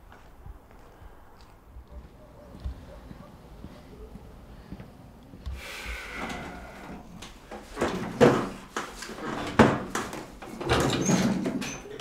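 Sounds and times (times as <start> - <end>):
short creak: 5.9 - 7.3
household objects knocking and clattering: 7.8 - 11.8.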